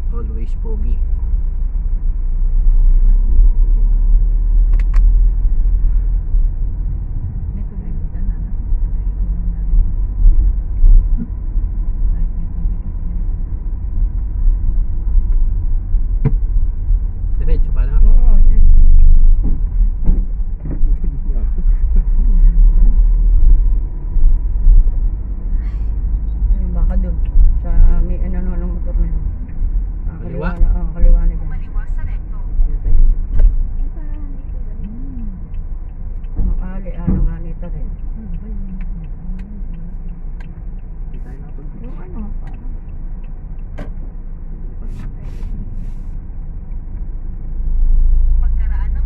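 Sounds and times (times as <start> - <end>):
road vehicle rumble: 0.0 - 49.0
faint voices: 30.1 - 30.8.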